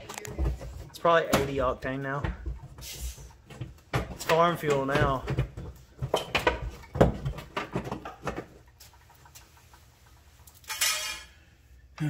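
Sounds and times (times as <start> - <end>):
knocks and rattles of fuel tank: 3.4 - 8.6.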